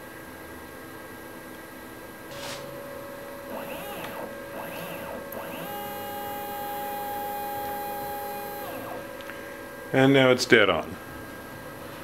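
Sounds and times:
milling machine table motor whine: 0:02.3 - 0:10.0.

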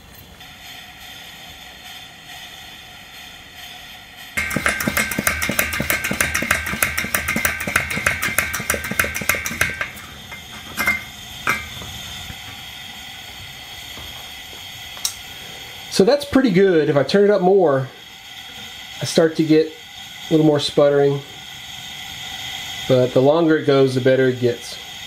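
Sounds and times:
stove burner hissing: 0:00.0 - 0:25.0
burner sputtering and crackling: 0:04.4 - 0:17.0.

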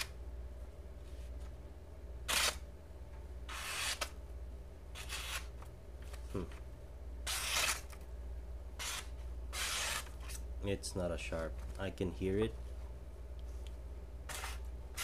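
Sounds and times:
knife slicing paper: 0:02.3 - 0:02.6, 0:03.5 - 0:04.1, 0:05.0 - 0:05.5, 0:07.2 - 0:08.0, 0:08.8 - 0:10.4, 0:14.3 - 0:15.0.

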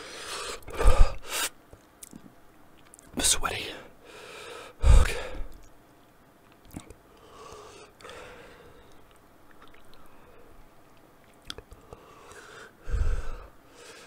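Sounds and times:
wet lip and tongue clicks: 0:01.7 - 0:03.2, 0:05.5 - 0:05.8, 0:06.4 - 0:07.0, 0:08.9 - 0:10.2, 0:10.8 - 0:12.0.

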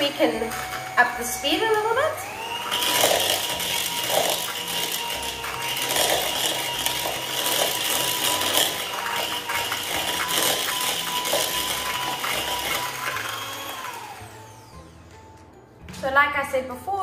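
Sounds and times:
mixer motor whine: 0:00.0 - 0:15.1
mixer beaters clattering in bowl: 0:02.7 - 0:14.0.

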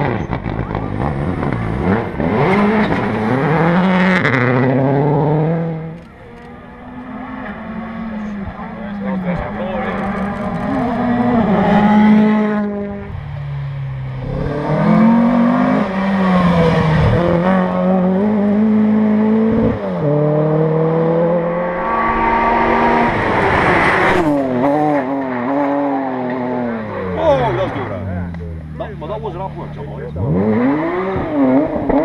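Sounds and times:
rally car engines revving: 0:00.0 - 0:32.0.

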